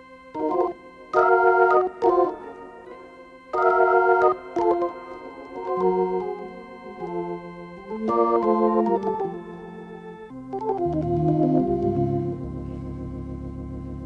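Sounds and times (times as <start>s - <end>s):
organ chords: 0.0s - 14.0s
low bass notes: 4.3s - 14.0s.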